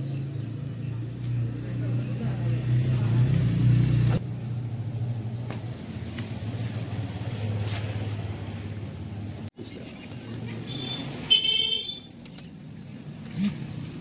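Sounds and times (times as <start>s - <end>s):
vehicle engine running: 0.0s - 9.5s.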